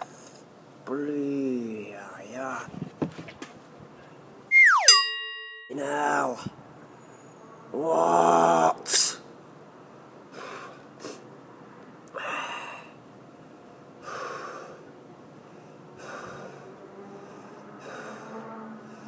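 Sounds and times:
man breathing hard: 0:10.3 - 0:11.3, 0:12.1 - 0:19.0.

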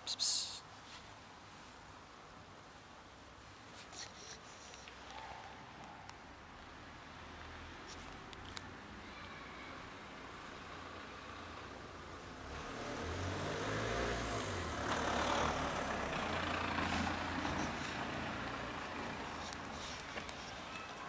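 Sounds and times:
heavy vehicle engine rumble: 0:14.5 - 0:20.7.

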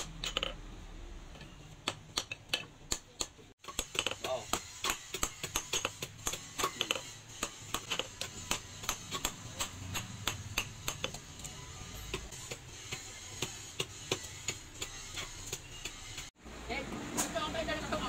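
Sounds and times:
hammer striking hot steel on anvil: 0:01.8 - 0:16.2.

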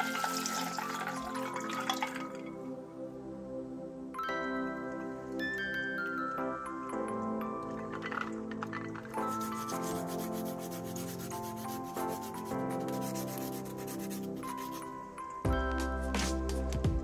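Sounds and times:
sponge scrubbing shells in water: 0:00.0 - 0:02.2, 0:07.7 - 0:15.0
soft background music: 0:00.0 - 0:17.0.

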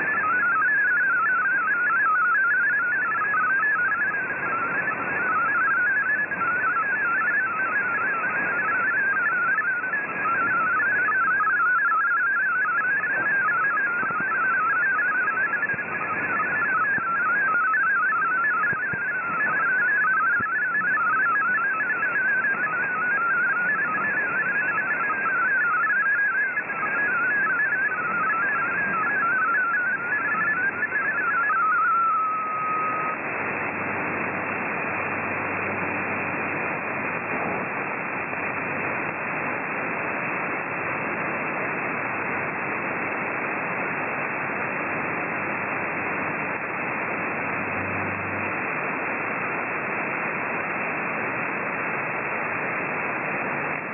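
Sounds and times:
warbling digital radio tones: 0:00.0 - 0:39.5
shortwave static and hiss: 0:00.0 - 0:53.9.

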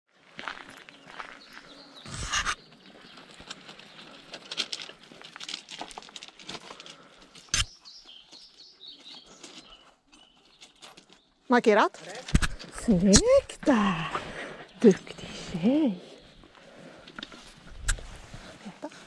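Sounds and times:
footsteps on gravel: 0:00.1 - 0:09.8
rope rustling: 0:02.2 - 0:07.6.

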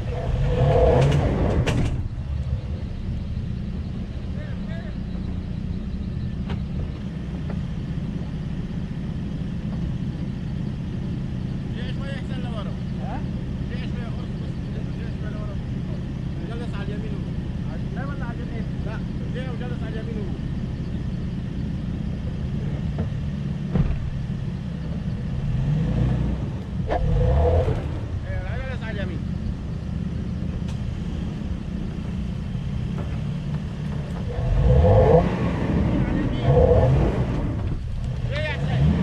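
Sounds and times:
car engine idling: 0:00.0 - 0:39.0.

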